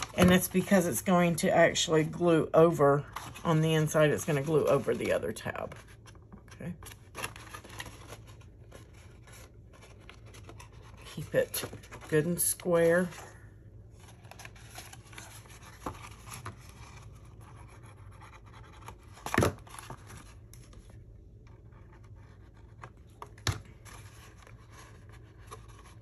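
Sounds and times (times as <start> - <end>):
fingers rustling cardstock: 3.0 - 13.3.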